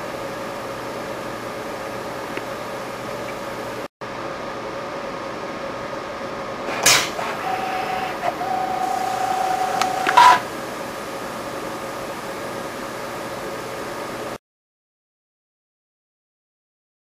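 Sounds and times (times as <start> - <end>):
pneumatic gripper air hiss: 6.7 - 10.5
motor whine: 7.0 - 11.5.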